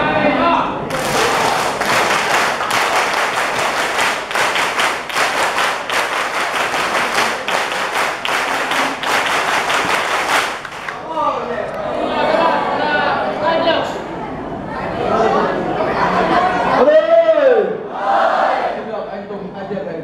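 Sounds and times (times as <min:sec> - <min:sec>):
group clapping: 0:00.9 - 0:11.1.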